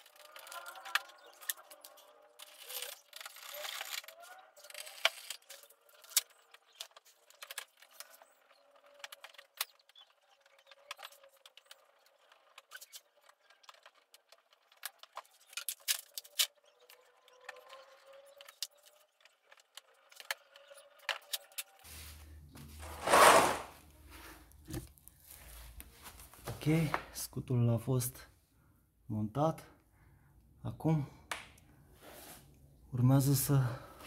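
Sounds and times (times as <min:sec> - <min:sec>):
metal scraping: 0:22.8 - 0:23.8.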